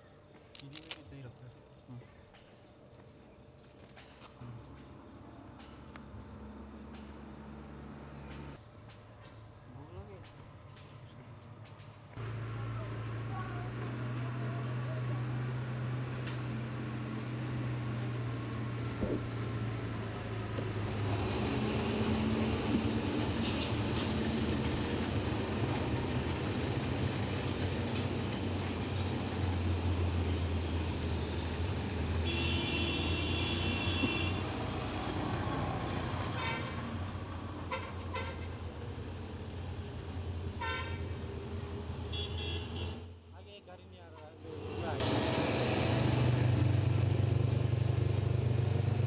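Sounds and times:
heavy trucks driving past: 4.6s - 8.6s, 12.2s - 43.3s, 44.3s - 49.0s
motorcycle: 5.6s - 8.6s, 12.2s - 43.1s, 44.4s - 49.0s.

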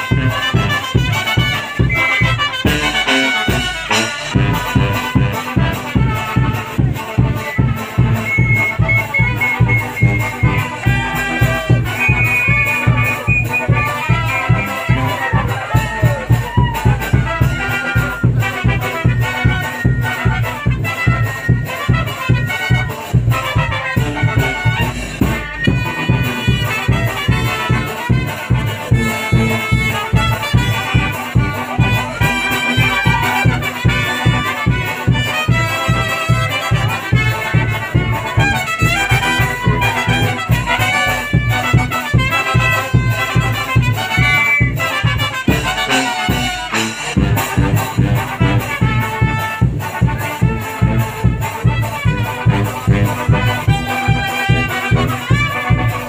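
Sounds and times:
brass band music: 0.0s - 56.0s
pulsing bass beat: 4.4s - 49.4s, 50.4s - 55.9s.

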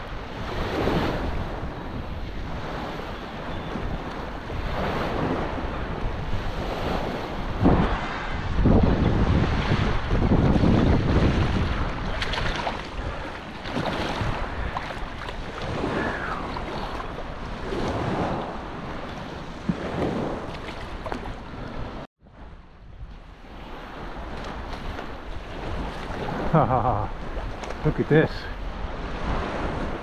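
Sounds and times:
wind buffeting microphone: 0.0s - 30.0s
small waves lapping: 9.6s - 22.1s, 23.2s - 30.0s.

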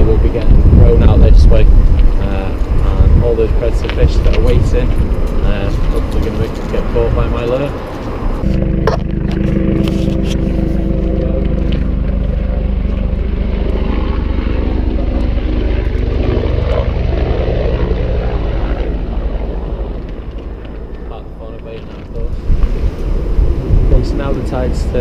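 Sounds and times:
propeller aircraft engine drone: 0.0s - 25.0s.

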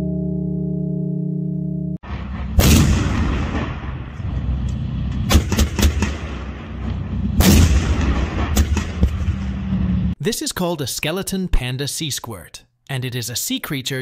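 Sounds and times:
sharp cracks: 2.0s - 9.8s
tank gun firing: 2.0s - 9.9s
engine low rumble: 2.1s - 7.9s.

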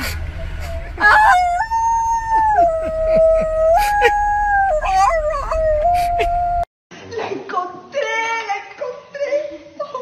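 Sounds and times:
woman howling: 1.0s - 6.7s.

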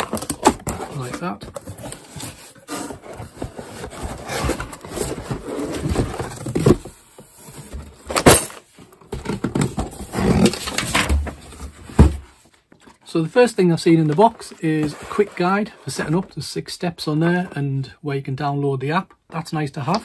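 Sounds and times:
plastic-bagged parts shifting: 0.0s - 2.4s
packaging rustling and scraping: 0.0s - 13.0s, 13.9s - 16.2s.

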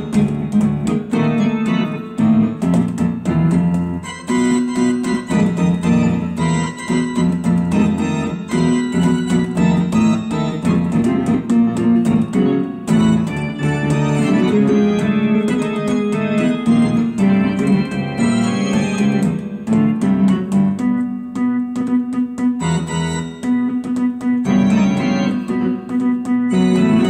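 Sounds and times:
electronic keyboard playing: 0.0s - 27.0s.

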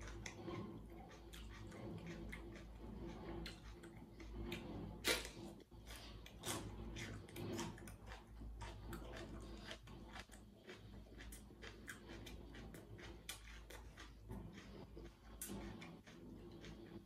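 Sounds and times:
chewing crunchy pepper: 0.0s - 17.0s.

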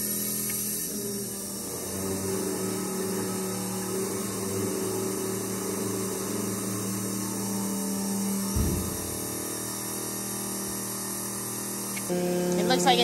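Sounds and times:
fuel pump humming: 0.0s - 13.0s.

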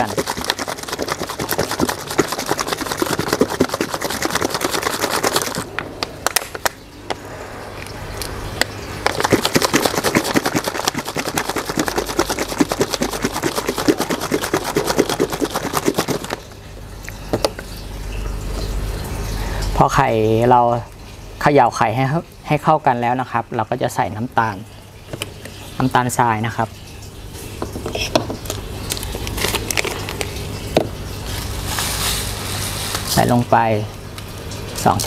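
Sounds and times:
eggs sloshing in shaken bottle: 0.0s - 5.7s, 9.0s - 16.6s, 28.5s - 33.4s.

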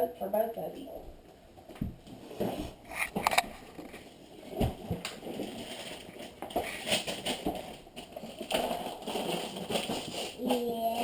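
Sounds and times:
wrapping paper rustling: 2.9s - 11.0s
knocks of presents handled: 4.5s - 10.7s.

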